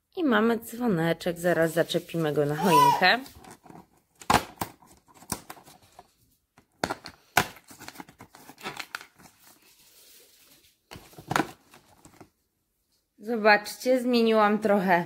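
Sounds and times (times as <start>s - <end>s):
cardboard tearing and crinkling: 6.9s - 9.7s.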